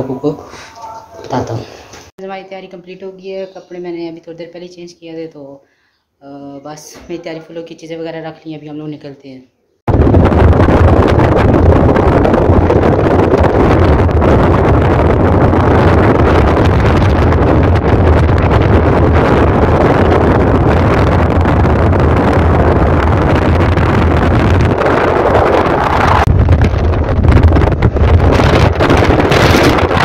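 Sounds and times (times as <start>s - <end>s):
wind buffeting microphone: 9.9s - 30.0s.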